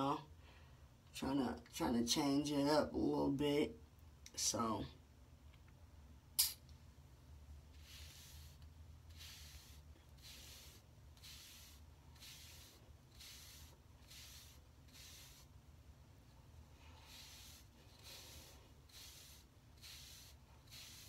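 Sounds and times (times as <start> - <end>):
sharp click: 6.4 - 6.8
brush swishing through hair: 7.7 - 15.6, 16.7 - 21.0.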